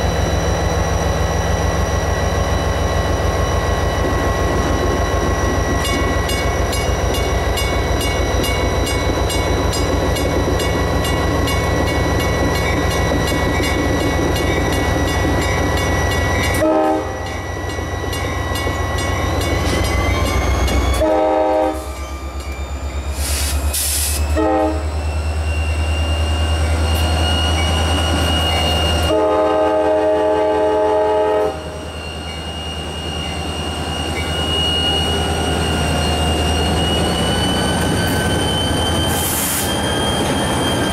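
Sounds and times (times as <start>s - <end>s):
diesel locomotive engine: 0.0s - 40.9s
locomotive air horn blasts: 16.6s - 17.2s, 21.0s - 21.9s, 24.3s - 24.8s, 29.1s - 31.8s.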